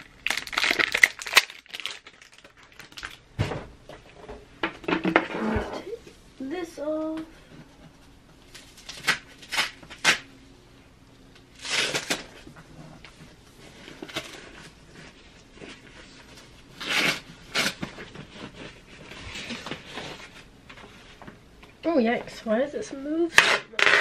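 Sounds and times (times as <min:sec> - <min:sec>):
plastic wrap rustling and crinkling: 0:00.0 - 0:03.2, 0:08.4 - 0:10.3, 0:11.5 - 0:21.3.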